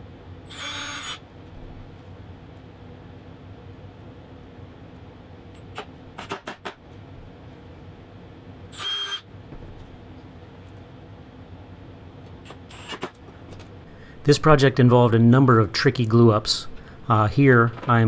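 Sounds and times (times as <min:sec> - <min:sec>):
steady low hum: 0:00.0 - 0:18.0
cordless drill whirring: 0:00.5 - 0:01.2, 0:08.7 - 0:09.2, 0:12.5 - 0:13.1.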